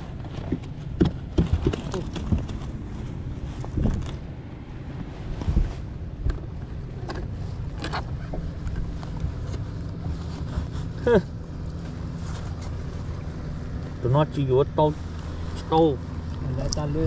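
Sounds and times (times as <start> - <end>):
boat motor running: 0.0 - 17.0
wind buffeting microphone: 1.0 - 10.0.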